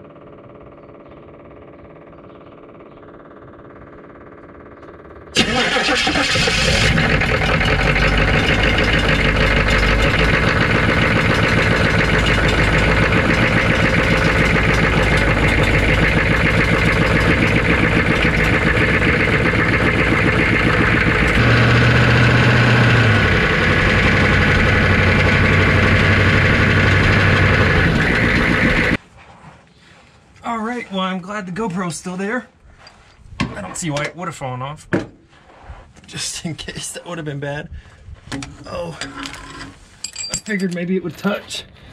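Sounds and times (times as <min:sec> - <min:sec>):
truck engine mechanical drone: 0:00.0 - 0:29.0
strong low hum: 0:06.7 - 0:29.0.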